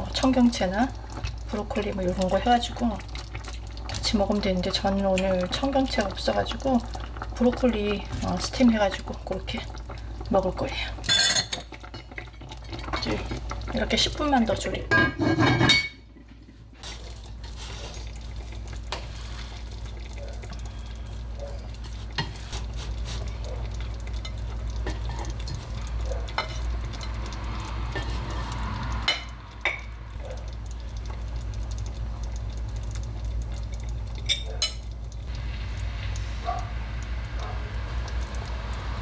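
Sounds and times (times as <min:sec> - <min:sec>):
steady low hum: 0:22.1 - 0:39.0.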